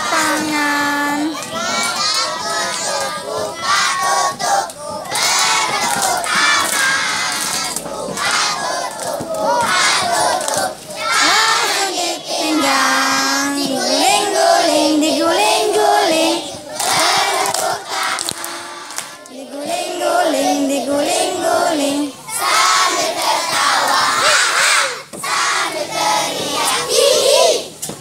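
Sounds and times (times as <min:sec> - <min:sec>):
children singing loudly: 0:00.0 - 0:27.7
hand clapping: 0:04.6 - 0:09.8, 0:16.8 - 0:19.4.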